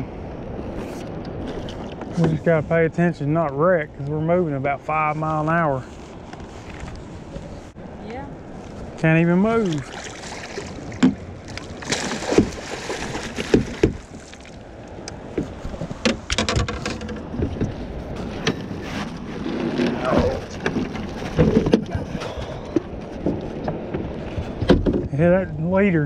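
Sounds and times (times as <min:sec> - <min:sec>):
fish splashing in a net: 0:09.8 - 0:14.6
knocks against boat hull: 0:11.0 - 0:11.2, 0:11.9 - 0:14.2, 0:22.8 - 0:25.2.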